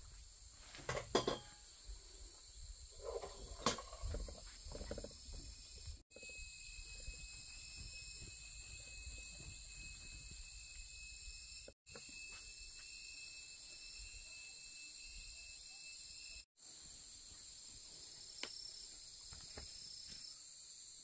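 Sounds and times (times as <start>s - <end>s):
faint insect drone: 0.0s - 21.0s.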